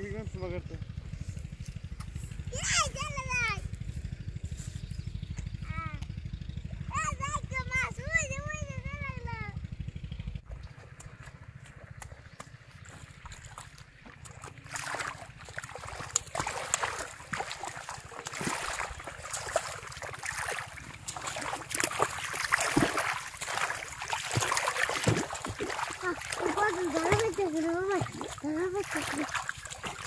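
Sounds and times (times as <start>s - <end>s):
low steady rumble: 0.0s - 30.0s
person wading in muddy water: 10.4s - 30.0s.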